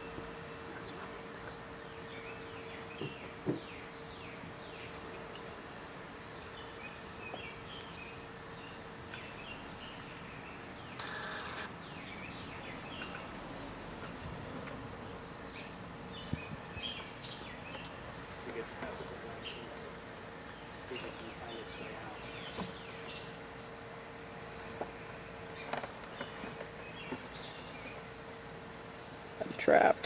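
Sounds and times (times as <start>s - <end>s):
birds chirping: 0.0s - 30.0s
robotic lawnmower motor hum: 6.4s - 14.2s.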